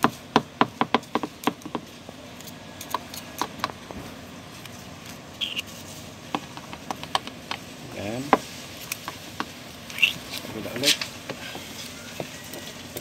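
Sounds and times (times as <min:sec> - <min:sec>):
short high squeak: 0:05.4 - 0:05.7.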